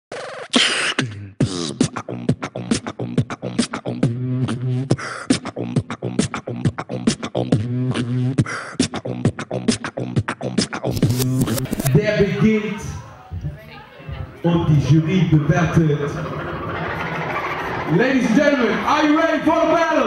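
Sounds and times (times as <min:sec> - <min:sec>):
beatboxing drum hits: 0:00.1 - 0:12.0.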